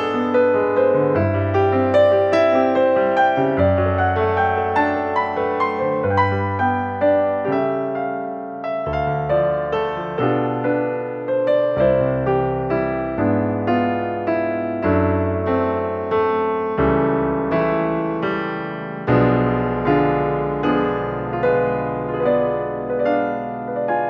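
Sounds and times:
calm piano music: 0.0 - 24.0.

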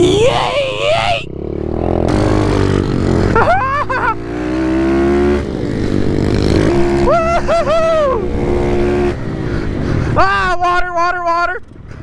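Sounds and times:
small motorbike engine accelerating: 1.3 - 9.8.

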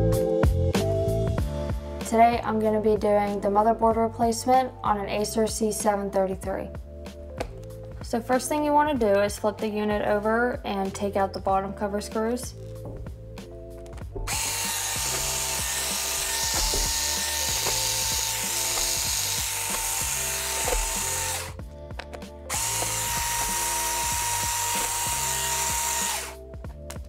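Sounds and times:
background music: 0.0 - 27.0
electric screwdriver whining: 13.9 - 26.4.

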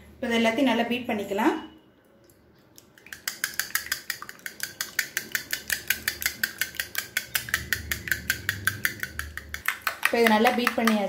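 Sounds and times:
whisk clicking against bowl: 3.0 - 11.0.

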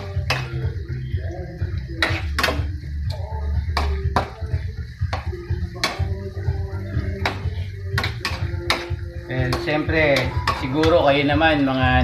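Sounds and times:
spatula scraping a wok: 0.0 - 0.7, 2.0 - 2.7, 7.2 - 11.0.

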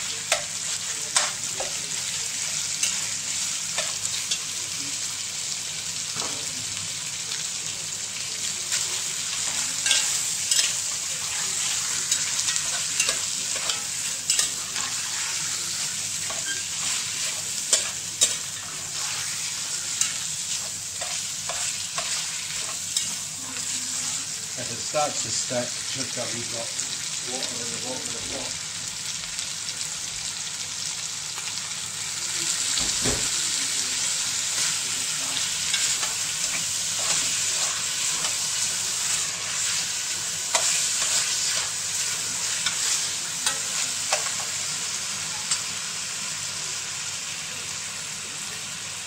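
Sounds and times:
meat sizzling in a pot: 0.0 - 49.0
metal spoon scraping a pot: 16.2 - 19.3.

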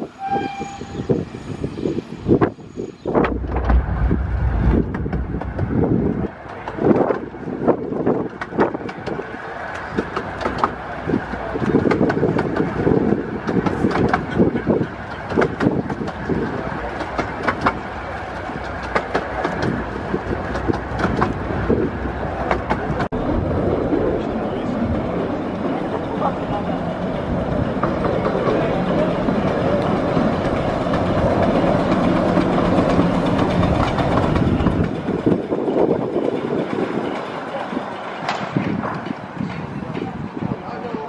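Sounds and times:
wheels clicking on rails: 4.9 - 21.6.

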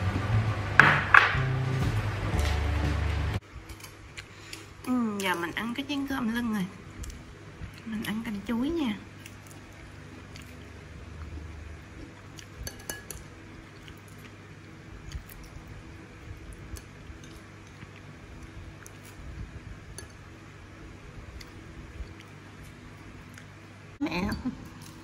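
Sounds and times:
faint low hum: 1.4 - 25.0
metal spoon clinking on ceramic bowl: 12.6 - 13.2.

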